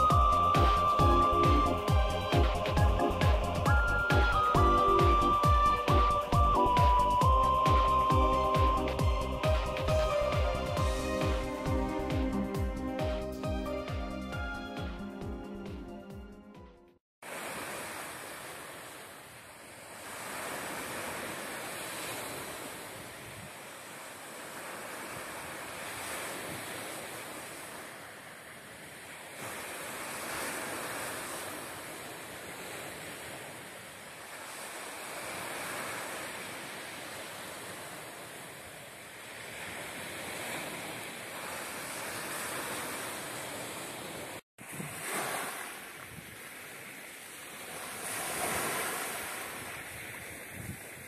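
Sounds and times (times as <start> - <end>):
surf washing onto shore: 17.2 - 51.0.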